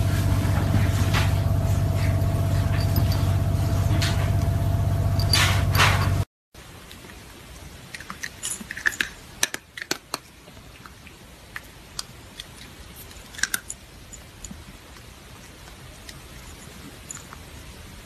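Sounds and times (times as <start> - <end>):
cat crunching dry kibble: 7.8 - 17.5.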